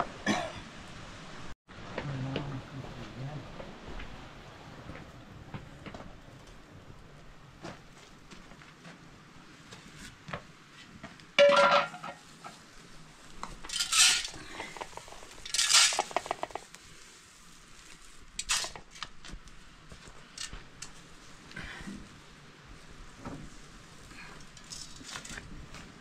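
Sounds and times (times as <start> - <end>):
grain rattling in metal pan: 11.4 - 12.2, 13.7 - 16.7
metal pan ringing clank: 11.4 - 12.2.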